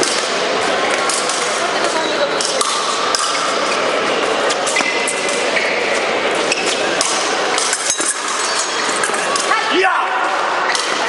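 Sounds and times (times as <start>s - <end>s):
echoing din of busy hall: 0.0s - 11.0s
fencing blades clinking: 0.9s - 3.7s, 6.4s - 9.6s.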